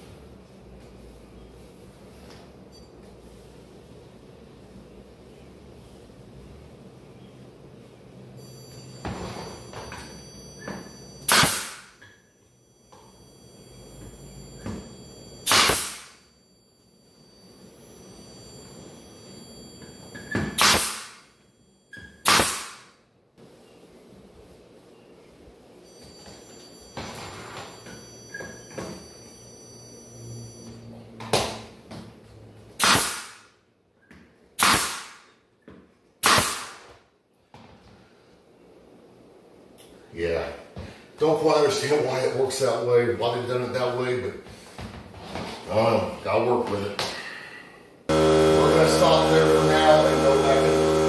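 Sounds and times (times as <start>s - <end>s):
nail gun firing: 11.3s - 11.9s, 15.5s - 16.2s, 20.6s - 21.2s, 22.2s - 22.9s, 32.8s - 33.5s, 34.6s - 35.3s, 36.2s - 36.9s.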